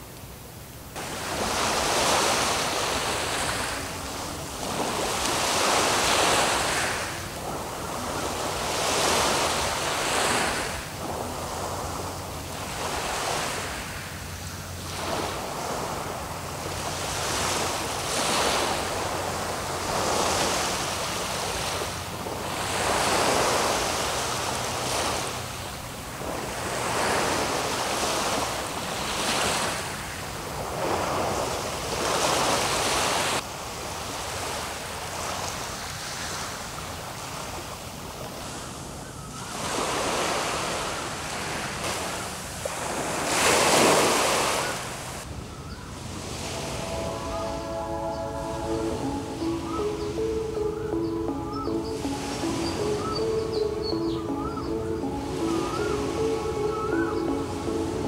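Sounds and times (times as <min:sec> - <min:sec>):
sea waves washing on beach: 0:00.0 - 0:58.0.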